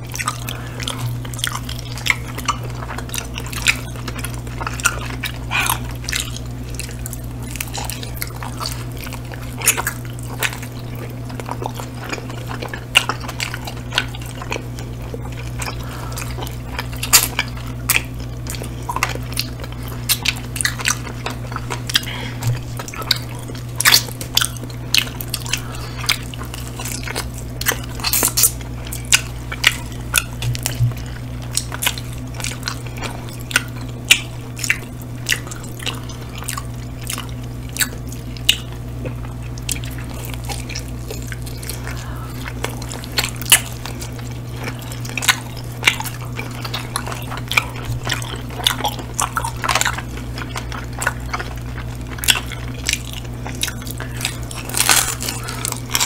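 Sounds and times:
people chewing food: 0.0s - 56.0s
steady low hum: 0.0s - 56.0s.

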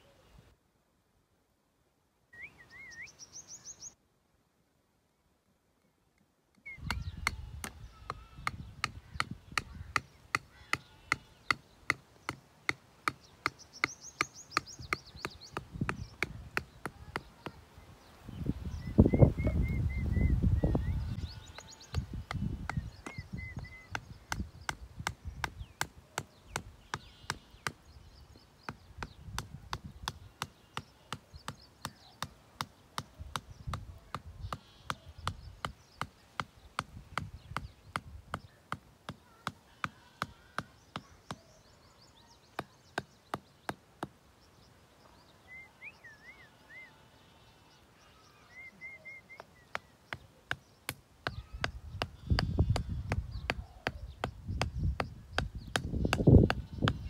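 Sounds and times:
hammer knocking wooden stakes: 6.8s - 17.6s, 21.9s - 27.8s, 28.6s - 41.5s, 49.4s - 57.0s.

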